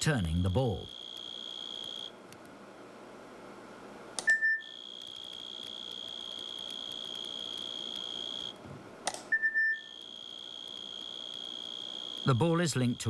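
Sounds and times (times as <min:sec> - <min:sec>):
synthesized cricket tone: 0:00.8 - 0:02.1, 0:04.3 - 0:08.6, 0:09.4 - 0:13.0
sharp click: 0:09.0 - 0:09.3.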